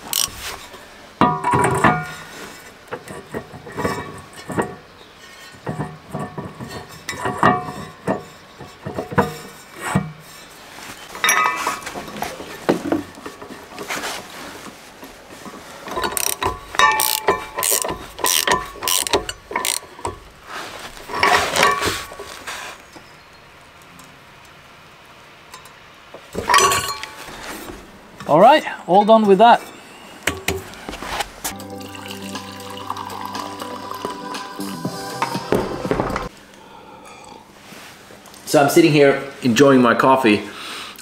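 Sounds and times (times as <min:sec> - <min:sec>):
socket ratchet clicking: 0:00.0 - 0:00.3, 0:16.2 - 0:19.9
metal clunks and clinks: 0:01.2 - 0:10.2, 0:11.2 - 0:13.8, 0:15.9 - 0:20.4, 0:21.0 - 0:22.3, 0:26.4 - 0:27.8.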